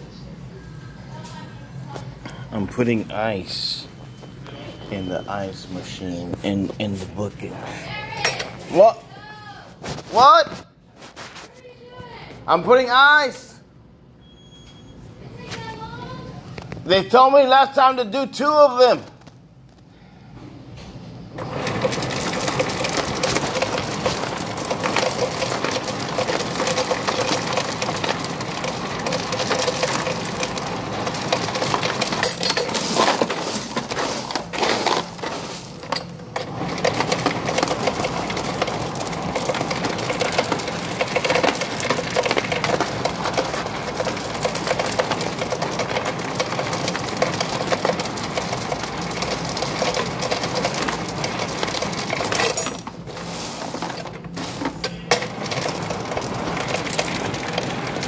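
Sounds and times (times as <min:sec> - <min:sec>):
ice cubes rattling into plastic bag: 0:21.4 - 0:58.0.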